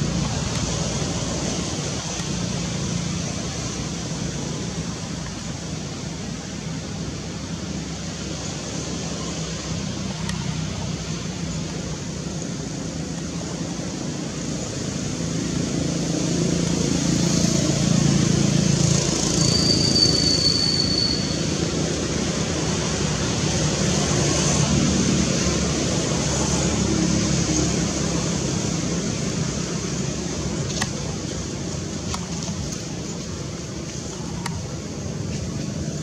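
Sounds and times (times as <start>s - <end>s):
road traffic rumble: 0.0s - 36.0s
thin high whistle: 19.4s - 21.6s.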